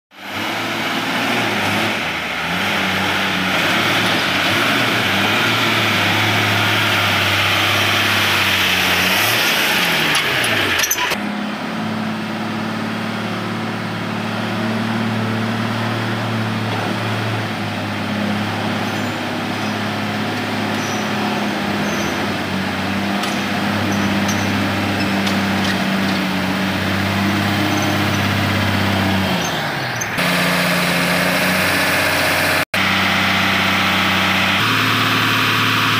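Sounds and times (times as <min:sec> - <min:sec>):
diesel truck engine idling: 0:09.8 - 0:32.0, 0:32.8 - 0:35.9.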